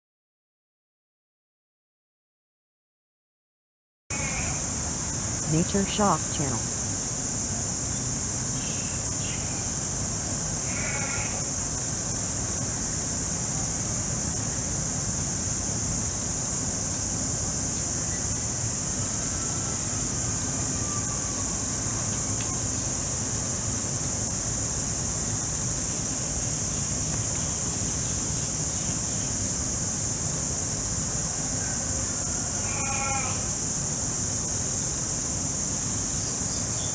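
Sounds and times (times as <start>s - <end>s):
crickets chirping: 4.1s - 36.9s
short animal calls: 32.6s - 33.5s.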